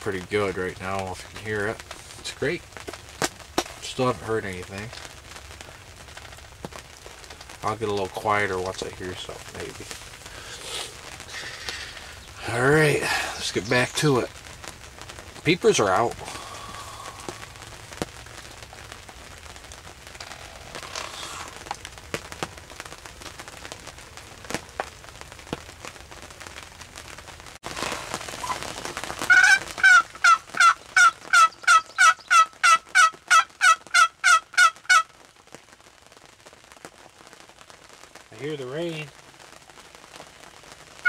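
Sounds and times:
light rain pattering: 0.0s - 41.0s
turkey call yelps: 28.4s - 28.7s, 29.3s - 35.1s.

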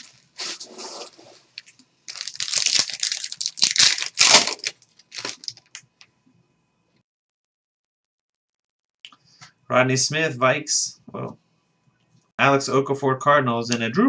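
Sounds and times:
foil pack crinkling and tearing: 0.0s - 5.8s.

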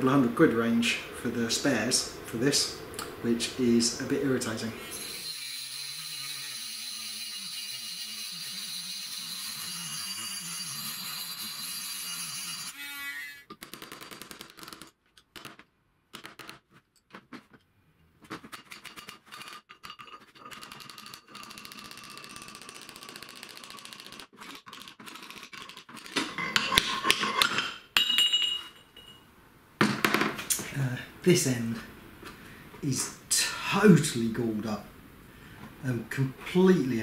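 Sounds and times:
rotary tool cutting metal: 4.8s - 13.6s, 19.0s - 26.2s.

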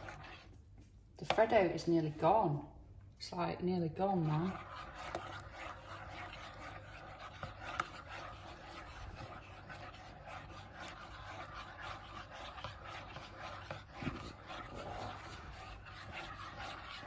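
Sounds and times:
metal spoon stirring in a mug: 4.1s - 17.0s.

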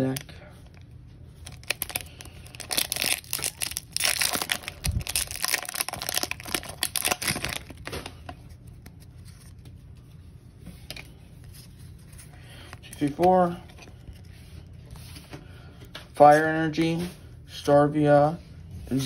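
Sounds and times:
foil wrapper crinkling and tearing: 1.4s - 9.7s.

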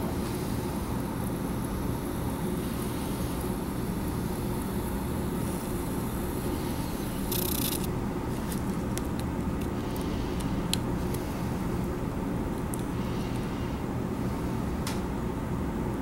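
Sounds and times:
small ticks: 7.2s - 7.9s.

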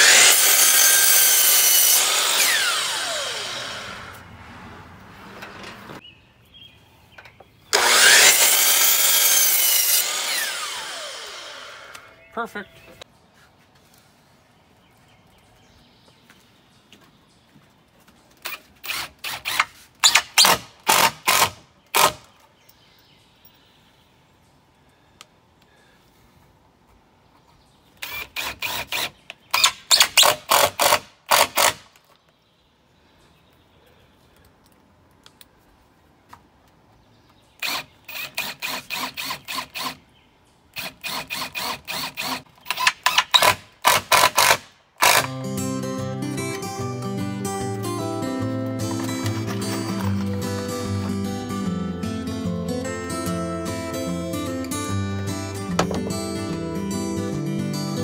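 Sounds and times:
impact driver driving screws: 18.4s - 22.3s, 28.0s - 31.8s, 40.8s - 45.3s, 55.8s - 56.2s.

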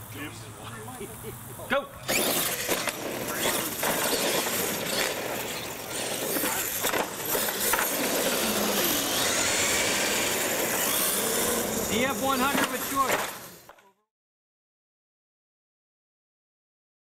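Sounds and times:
rc truck motors whining: 2.0s - 13.8s
tyres rolling on concrete: 2.0s - 13.8s.

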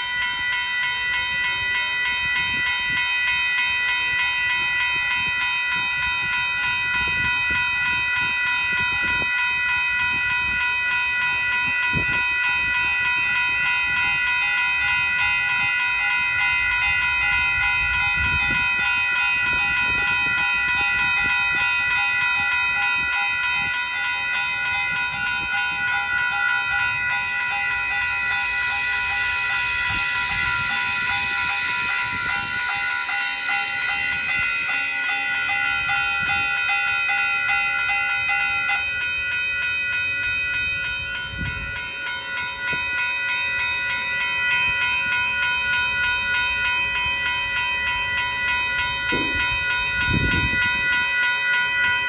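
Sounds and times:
crossing warning bell ringing: 0.0s - 52.0s
train rumble: 14.8s - 38.9s, 47.9s - 51.1s
train wheel thumps: 49.1s - 49.5s.

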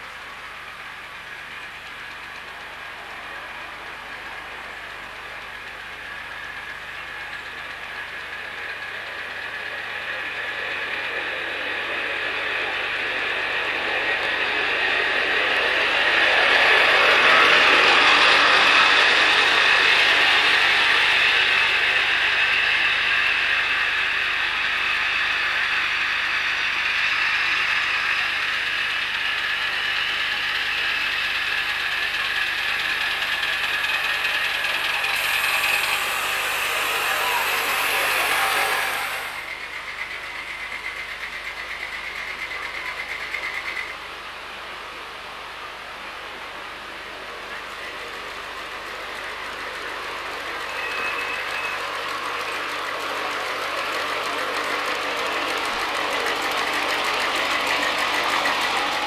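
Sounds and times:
high steam hiss: 0.0s - 59.0s
steam locomotive clatter: 0.0s - 59.0s.

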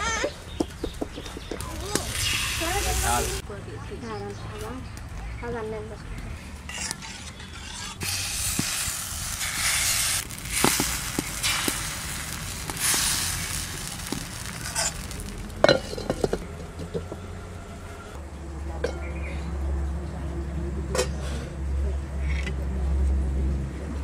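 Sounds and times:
batter sizzling: 1.6s - 3.4s, 6.8s - 16.4s.

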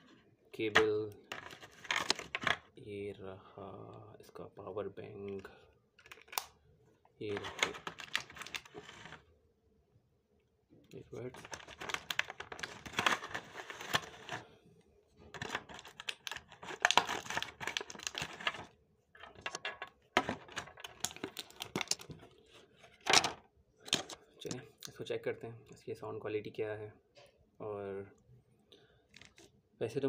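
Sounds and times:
packaging clicks and crinkles: 0.8s - 2.6s, 6.0s - 6.6s, 7.3s - 9.2s, 11.2s - 14.4s, 15.3s - 24.2s.

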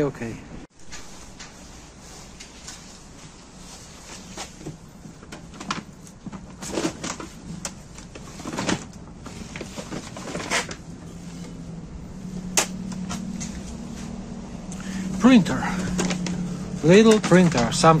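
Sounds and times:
plastic wrapping rustling: 0.8s - 11.7s.

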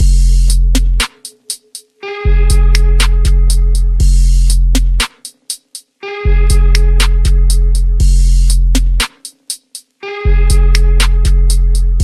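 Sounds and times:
deep bass: 0.0s - 1.0s, 2.3s - 5.0s, 6.3s - 9.0s, 10.3s - 12.0s.

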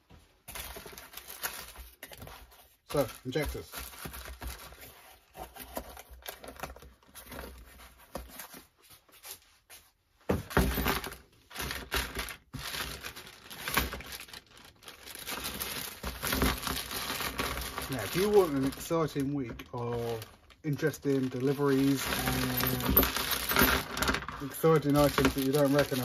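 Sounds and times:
cardboard rustling: 0.1s - 26.0s
plastic bag crinkling: 2.8s - 4.8s, 10.8s - 26.0s.

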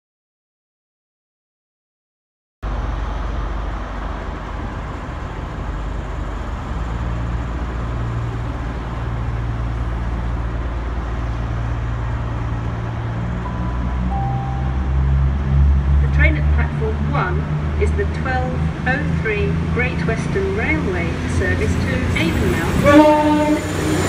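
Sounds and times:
diesel train engine idling: 2.6s - 24.0s
announcement chime tone: 13.4s - 15.4s.

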